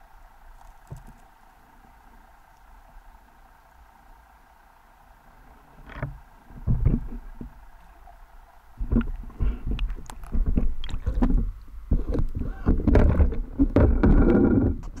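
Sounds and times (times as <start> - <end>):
water sloshing and gurgling: 0.0 - 15.0
thumps: 8.8 - 15.0.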